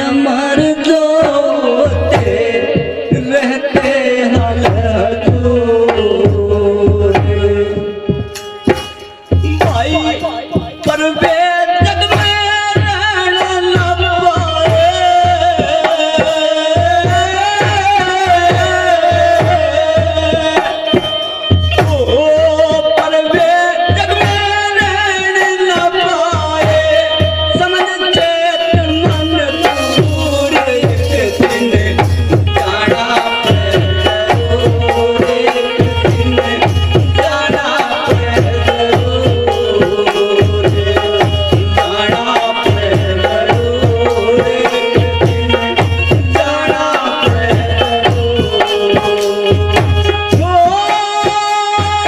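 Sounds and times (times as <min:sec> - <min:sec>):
held melody instrument: 0:05.1 - 0:52.0
hand drum beat: 0:28.7 - 0:52.0.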